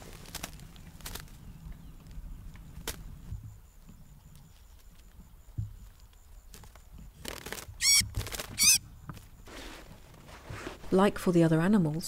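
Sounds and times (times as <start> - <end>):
rustling: 0.0 - 1.4, 5.9 - 11.2
bird high-pitched calls: 7.8 - 8.8.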